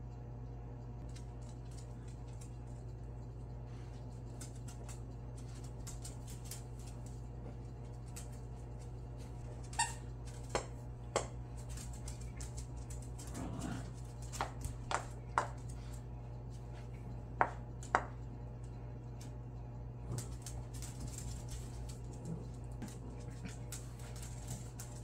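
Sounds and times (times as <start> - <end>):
low hum: 0.0 - 25.0
dogs scuffling: 3.7 - 17.2, 20.0 - 25.0.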